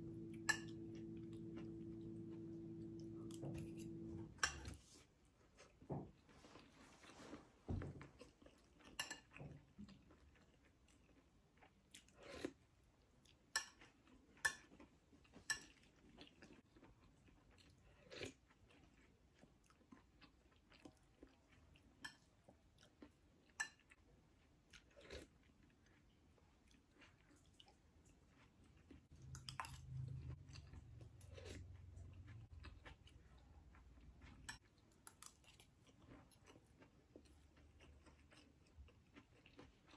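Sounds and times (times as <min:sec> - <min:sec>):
faint low hum: 0:00.0 - 0:10.6, 0:27.3 - 0:39.9
soft chewing: 0:00.0 - 0:39.9.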